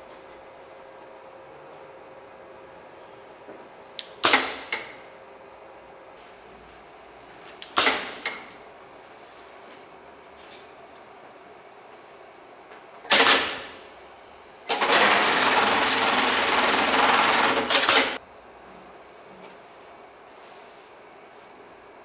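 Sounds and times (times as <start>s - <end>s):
sewing machine stitching: 14.7s - 18.2s.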